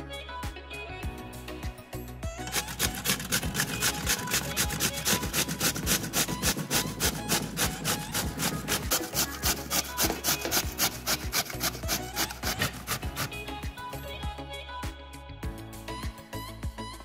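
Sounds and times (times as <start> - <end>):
vegetable rasping on metal grater: 2.4 - 13.6.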